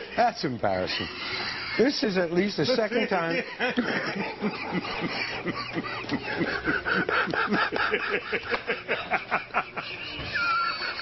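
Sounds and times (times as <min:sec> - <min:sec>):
people laughing uncontrollably: 0:00.0 - 0:11.0.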